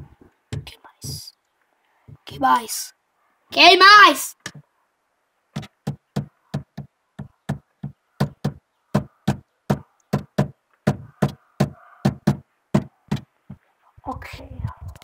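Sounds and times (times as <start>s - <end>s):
sharp knocks: 5.5s - 13.6s.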